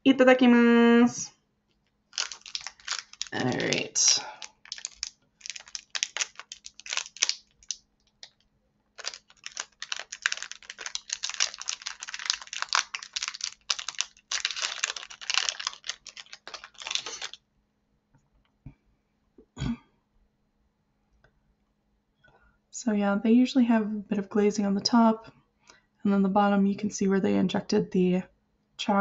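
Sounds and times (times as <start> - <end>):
plastic wrapper crackling: 2.1 - 17.4.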